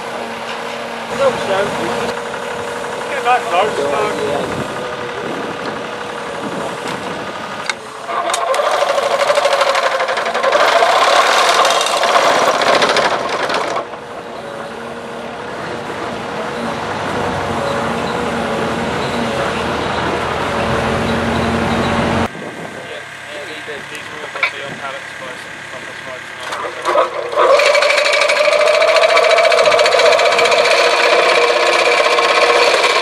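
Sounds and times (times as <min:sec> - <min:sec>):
excavator engine running: 0:00.0 - 0:33.0
post driver buzzing rattle: 0:01.2 - 0:15.0, 0:25.6 - 0:33.0.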